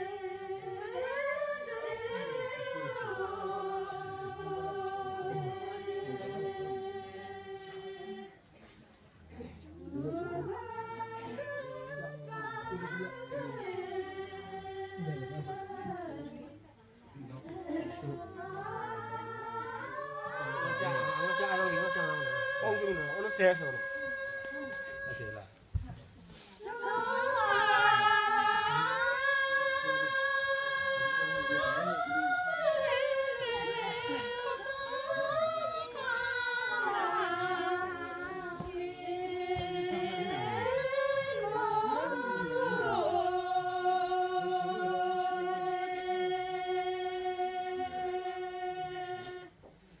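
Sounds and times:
women singing in unison: 0.0 - 8.5, 9.3 - 50.0.

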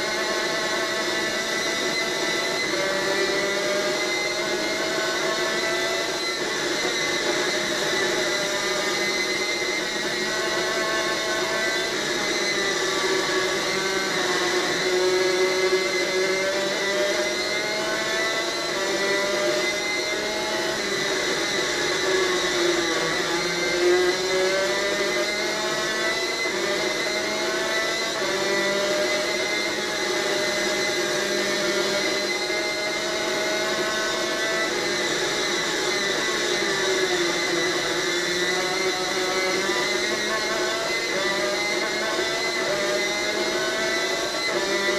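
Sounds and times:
kart engine revving: 21.6 - 44.9.

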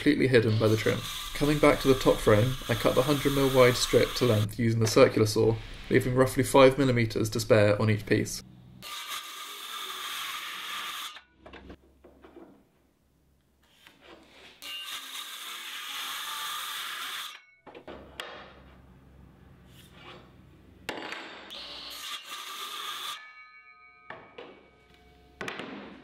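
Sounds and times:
circular saw cutting plywood: 0.3 - 7.4, 8.8 - 11.2, 14.6 - 17.4.

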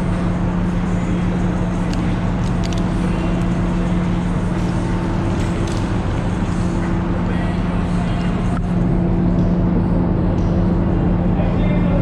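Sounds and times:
machinery drone: 0.0 - 12.0.

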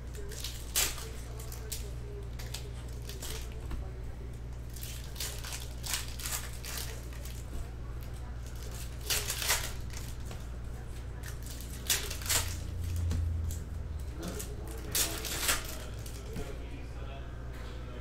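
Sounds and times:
steady low hum: 0.0 - 18.0
foil wrappers tearing and crinkling: 0.1 - 3.6, 4.7 - 7.5, 8.1 - 10.3, 11.1 - 13.6, 14.2 - 16.4.

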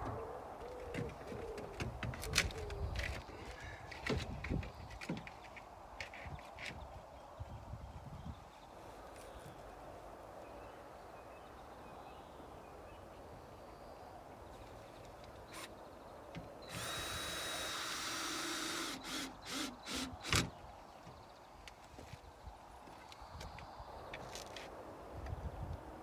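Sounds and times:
cordless drill whining: 16.7 - 20.4
drill trigger bursts: 16.7 - 20.4.

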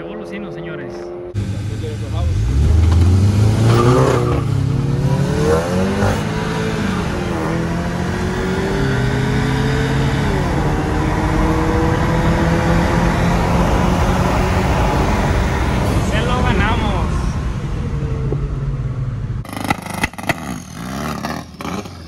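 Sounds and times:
car engine accelerating through gears: 1.0 - 16.1.

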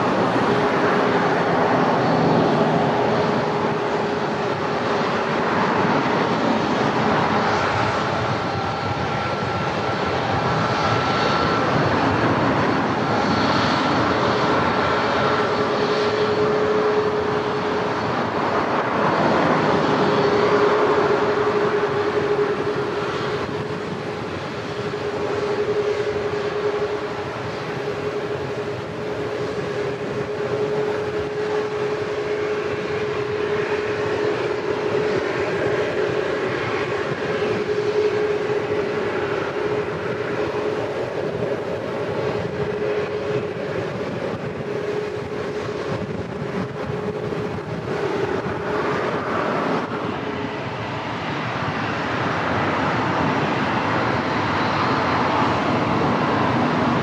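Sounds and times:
jet engines running: 0.0 - 57.0.

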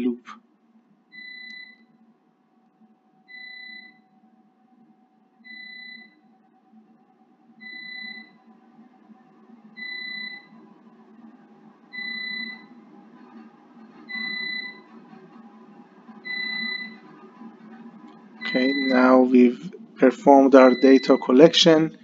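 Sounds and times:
low motor hum: 0.0 - 21.4
high-pitched electronic beeps: 12.0 - 12.7, 14.1 - 14.9, 16.2 - 17.0, 18.4 - 19.6, 20.5 - 21.5.

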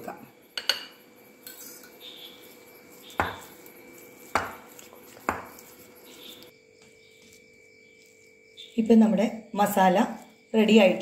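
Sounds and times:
spoon scraping glass bowl: 0.7 - 6.5, 7.1 - 9.0.

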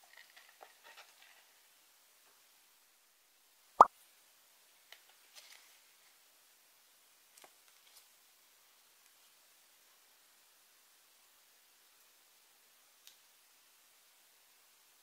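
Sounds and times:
cardboard and paper rustling: 0.0 - 1.6, 5.0 - 5.8.

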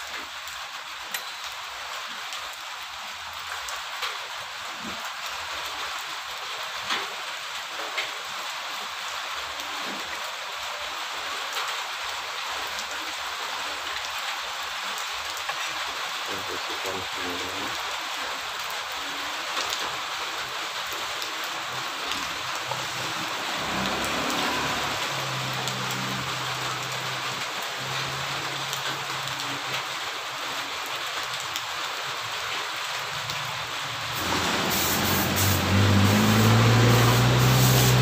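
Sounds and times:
heavy rain hissing: 8.5 - 38.0
low motor hum: 34.2 - 38.0.

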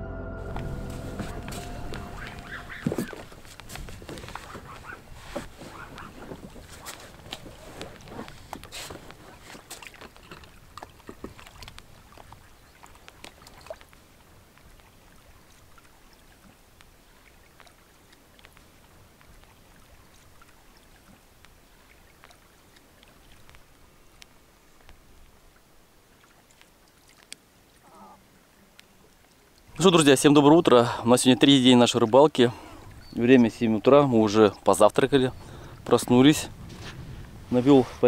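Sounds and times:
small water splashes: 2.4 - 34.0
faint steady hiss: 11.7 - 38.0.

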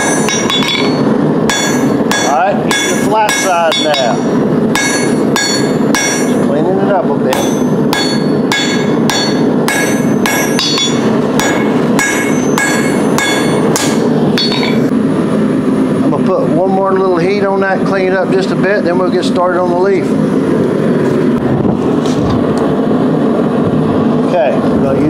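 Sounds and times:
hammer striking steel on anvil: 0.0 - 6.5, 7.3 - 14.9.

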